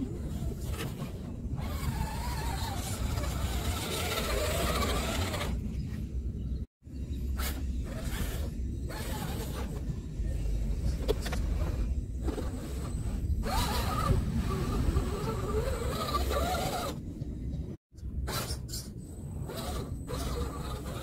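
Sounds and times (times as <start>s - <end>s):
wind rumbling on microphone: 0.0s - 17.8s
electric motor whining: 1.6s - 5.6s.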